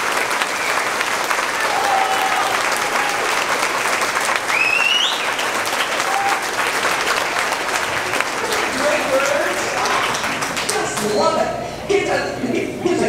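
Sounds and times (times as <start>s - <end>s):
audience applauding: 0.0s - 11.3s
rising whistle: 4.5s - 6.4s.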